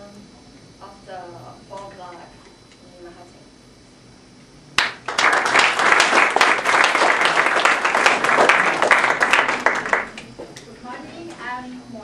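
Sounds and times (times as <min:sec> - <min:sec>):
audience applauding: 0:04.8 - 0:10.3.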